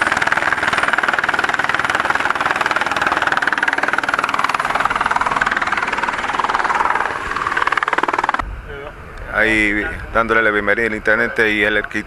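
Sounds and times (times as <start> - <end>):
helicopter rotor chopping: 0.0 - 8.5.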